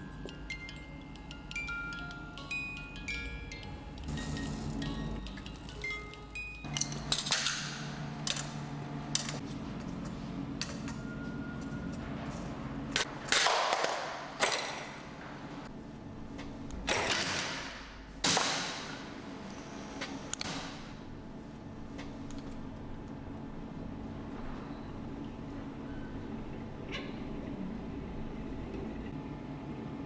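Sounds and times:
low steady hum: 0.0s - 13.3s
wooden and metal parts snapping: 6.7s - 9.4s.

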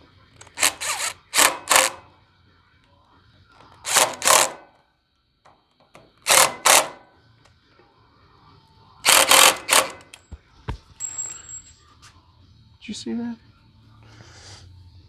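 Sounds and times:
impact driver in short bursts: 0.5s - 2.0s, 3.9s - 4.6s, 6.3s - 7.0s, 9.1s - 10.1s.

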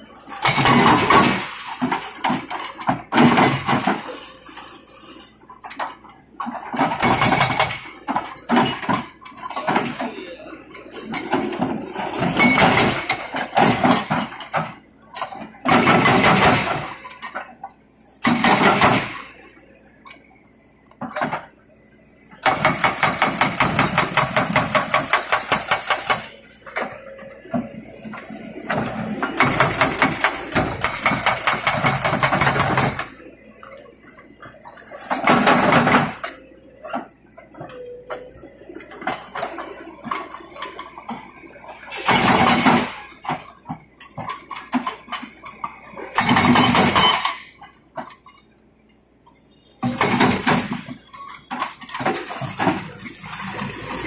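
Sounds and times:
excavator engine running: 0.0s - 54.0s
hydraulic breaker hammering concrete: 15.6s - 16.9s, 18.2s - 19.2s, 22.4s - 26.3s, 28.7s - 33.1s, 35.1s - 36.3s, 46.2s - 47.3s.

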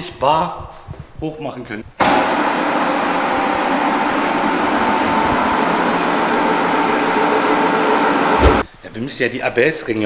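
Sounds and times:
hydraulic pump hissing and humming: 2.0s - 8.7s.

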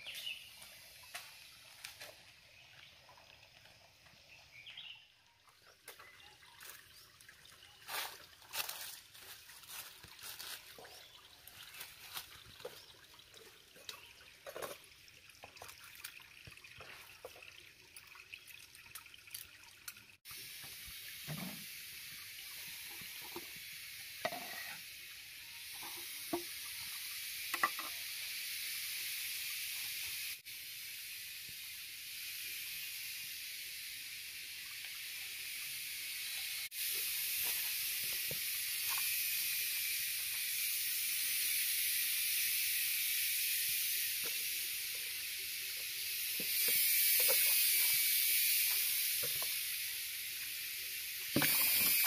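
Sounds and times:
faint trickling water: 0.0s - 28.1s
food sizzling on stove: 20.3s - 52.0s.

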